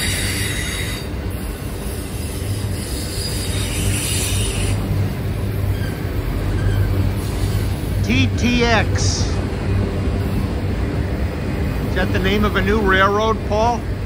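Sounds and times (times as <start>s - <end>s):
faint high wheel squeal: 0.0s - 1.2s, 1.9s - 4.9s, 5.5s - 7.8s
steel wheels rumbling on rail: 0.0s - 14.0s.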